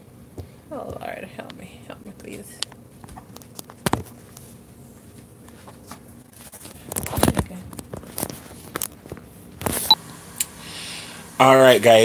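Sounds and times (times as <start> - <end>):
knocks and rustles of handling: 2.2 - 9.9.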